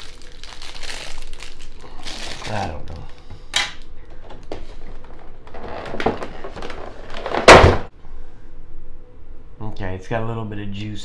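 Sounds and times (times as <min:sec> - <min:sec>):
loud plastic clatter: 0:05.9 - 0:07.9.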